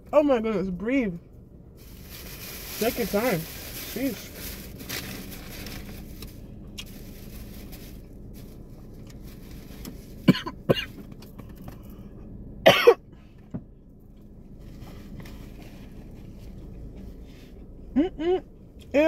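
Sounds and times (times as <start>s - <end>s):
woman coughing: 10.3s - 10.9s, 12.6s - 13.0s.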